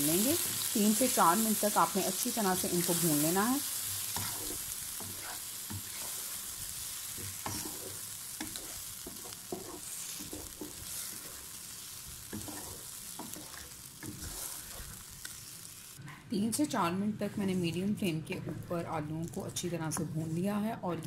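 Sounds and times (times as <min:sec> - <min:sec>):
food sizzling in oil: 0:00.0 - 0:16.0
wooden spatula scraping pan: 0:04.2 - 0:06.3, 0:07.2 - 0:11.5, 0:12.3 - 0:15.0.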